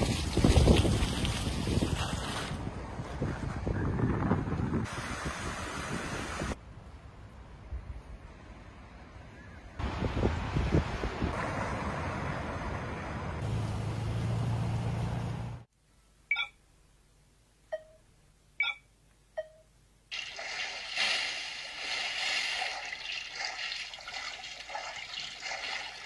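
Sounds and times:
wind: 0.0s - 26.0s
traffic noise: 4.9s - 15.7s
game sounds with water: 19.4s - 26.0s.

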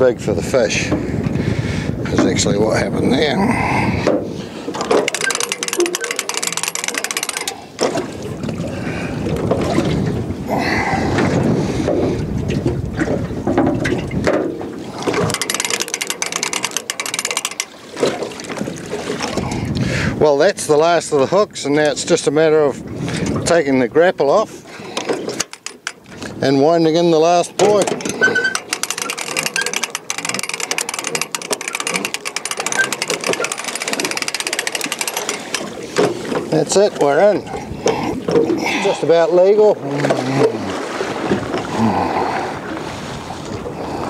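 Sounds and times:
low wind rumble: 0.0s - 44.0s
hand reel ratchet clicks: 4.8s - 7.7s, 15.1s - 17.8s, 25.4s - 26.0s, 27.6s - 35.7s.

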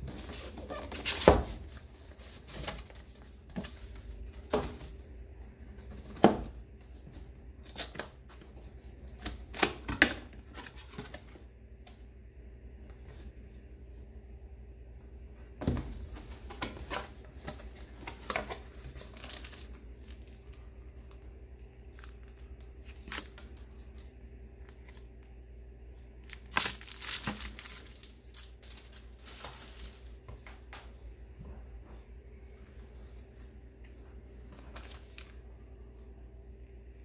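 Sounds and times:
cardboard and paper rustling: 0.0s - 11.5s, 15.6s - 24.1s, 26.3s - 31.6s, 34.4s - 35.4s
low steady hum: 0.0s - 37.0s.

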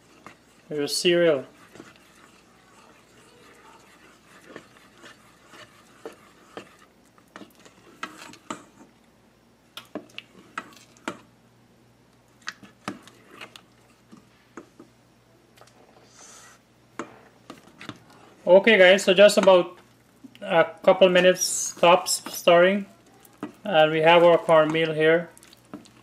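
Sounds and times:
spatula scraping a metal pot: 0.0s - 8.9s.

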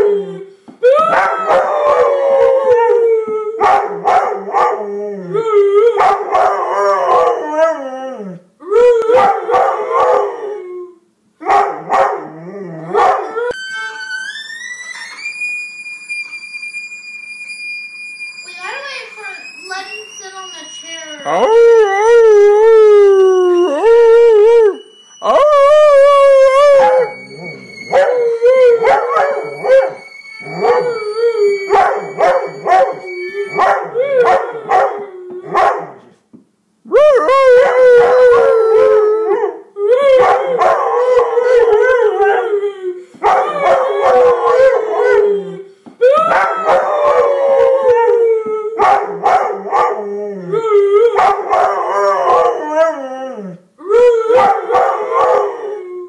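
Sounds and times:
dog howling: 0.0s - 13.6s, 21.2s - 36.1s, 36.9s - 56.0s
violin high sustained note: 13.4s - 21.5s, 23.4s - 33.6s.

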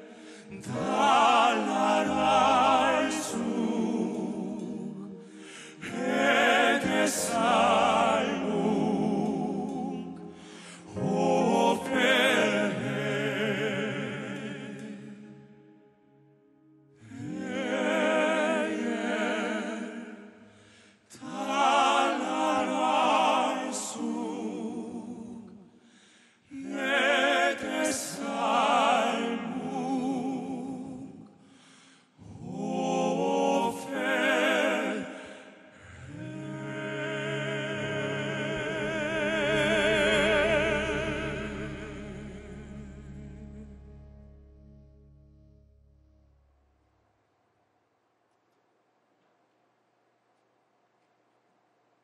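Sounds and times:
male vocal quartet singing ballad: 0.0s - 15.5s, 17.0s - 44.4s
low steady bass tone: 38.8s - 47.0s.

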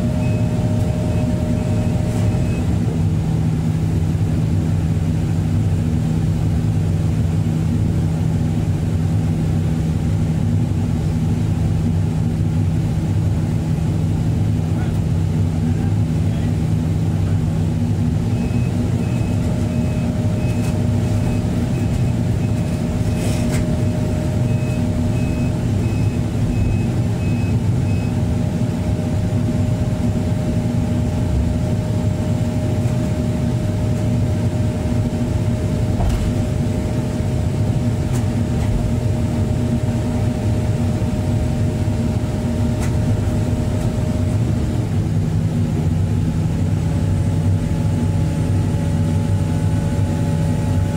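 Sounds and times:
warning alarm beeping: 0.0s - 2.8s, 18.3s - 28.2s
diesel engine running: 0.0s - 50.9s.

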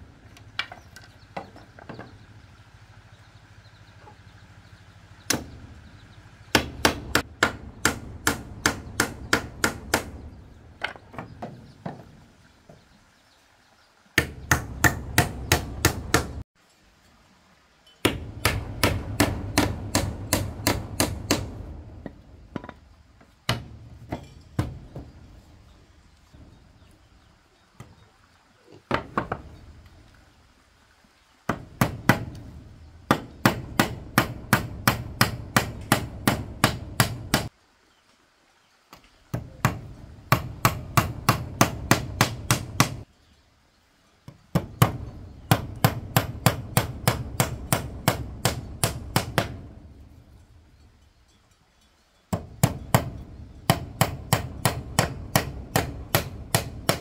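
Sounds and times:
hammering: 5.3s - 5.6s, 6.5s - 12.1s, 14.2s - 16.4s, 18.0s - 22.8s, 23.4s - 25.2s, 31.5s - 37.5s, 39.3s - 43.0s, 44.5s - 49.8s, 52.3s - 57.0s.

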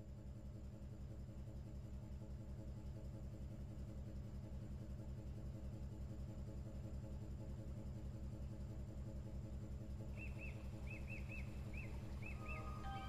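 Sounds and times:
ship engine throbbing: 11.9s - 13.0s
short high chirps: 12.3s - 13.0s.

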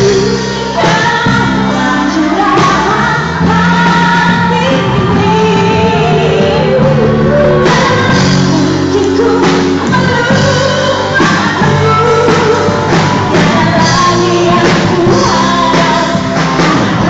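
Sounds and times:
backing music: 0.0s - 17.0s
women singing pop song: 0.0s - 17.0s.

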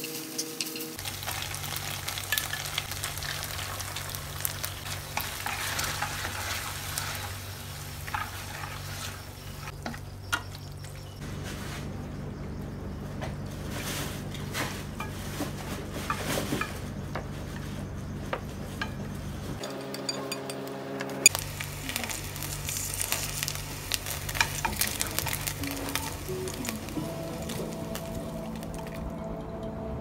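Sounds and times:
food sizzling in a pan: 0.0s - 9.8s, 21.2s - 29.0s
chopsticks scraping and clicking: 22.0s - 29.0s.

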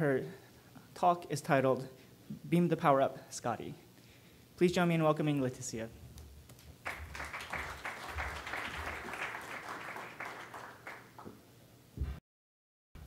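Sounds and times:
audience applauding: 6.8s - 11.4s.

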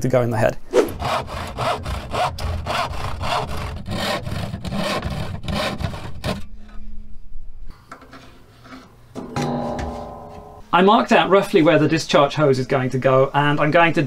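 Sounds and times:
handsaw cutting plywood: 0.8s - 6.5s.

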